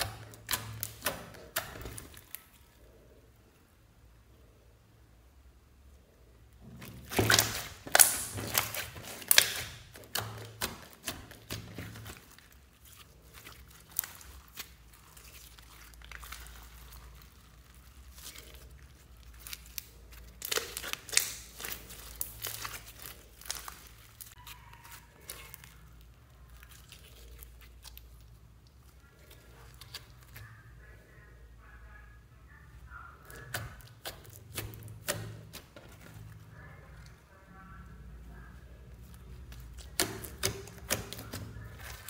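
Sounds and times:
sticky slime pops and crackles: 0.0 - 2.5, 6.8 - 16.7, 19.3 - 24.4, 33.2 - 36.2, 39.5 - 42.0.

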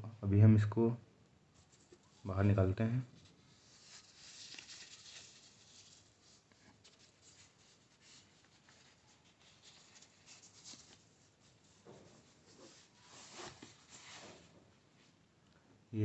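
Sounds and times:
packing wrap rustling: 3.2 - 14.5.

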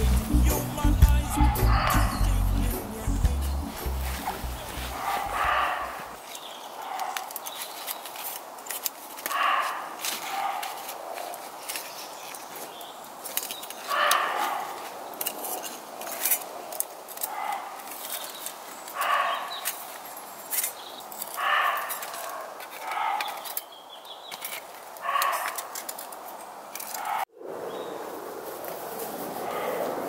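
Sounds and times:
animal barking: 1.1 - 2.5, 4.1 - 7.4, 9.3 - 10.8, 13.9 - 15.0, 17.2 - 17.9, 19.0 - 19.6, 21.4 - 23.5, 25.0 - 25.8, 26.9 - 27.3, 29.4 - 30.0
gear rustling and clicking: 4.0 - 27.3.

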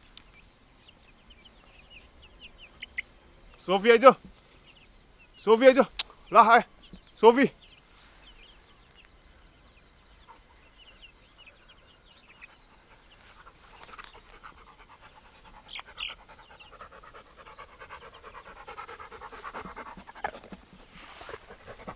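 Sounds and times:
dog panting: 12.3 - 21.9.

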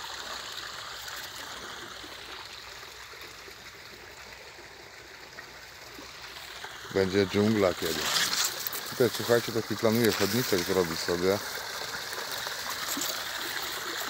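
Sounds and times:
water splashing into pond: 0.0 - 14.0.

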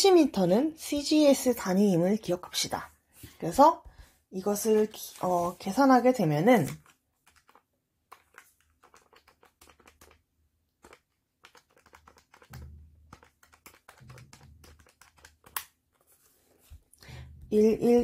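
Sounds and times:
calculator keys tapping: 6.8 - 7.6, 8.2 - 10.2, 10.8 - 15.8.

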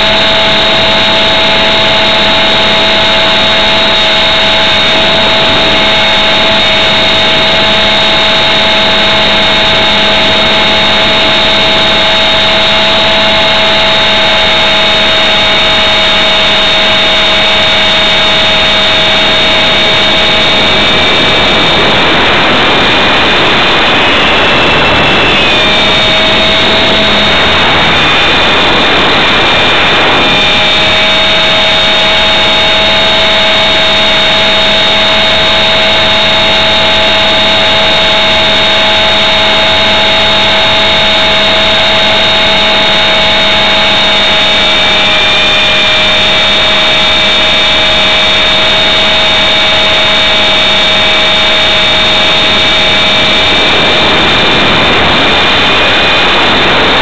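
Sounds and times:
rc helicopter motor whining: 0.0 - 57.0
rushing noise: 0.0 - 57.0.

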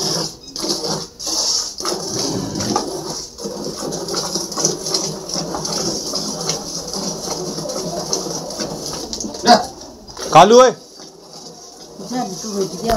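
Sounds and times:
milk squirting into a steel bucket: 0.6 - 9.5.

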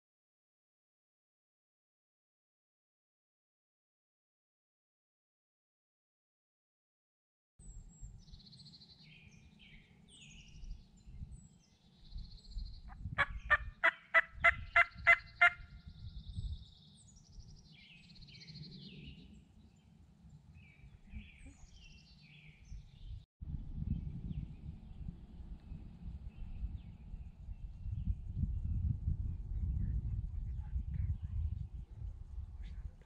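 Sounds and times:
low wind rumble: 7.6 - 33.0
songbirds chirping: 7.6 - 33.0
wild turkey calling: 13.2 - 15.7.

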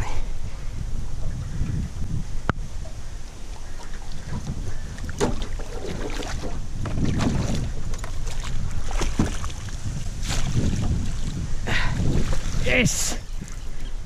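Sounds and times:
wind rumbling on microphone: 0.0 - 14.0
water splashing: 2.9 - 13.6.

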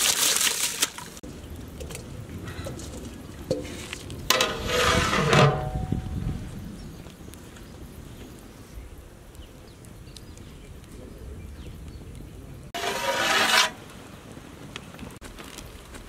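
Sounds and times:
metal pot lid scraping rim: 4.3 - 5.8, 12.8 - 13.8.

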